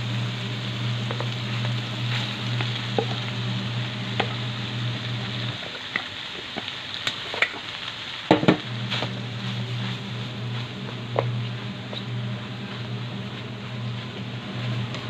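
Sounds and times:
low steady hum: 0.0 - 5.6, 8.6 - 15.0
rice sizzling in a wok: 0.0 - 15.0.

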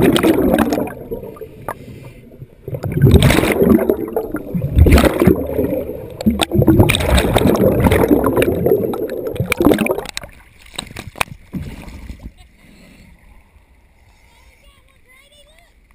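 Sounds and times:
underwater bubbles churning: 0.0 - 10.6
water splashes and drips: 0.0 - 12.2.

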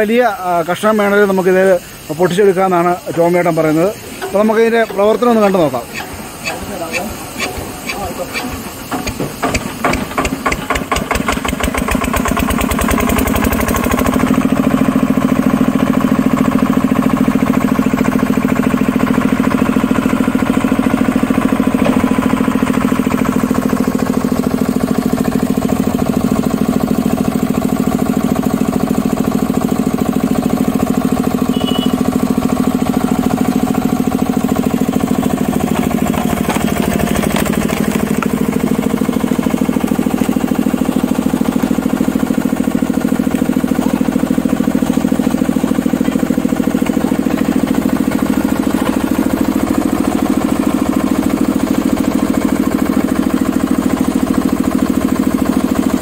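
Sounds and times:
engine starting and running: 0.0 - 56.0.

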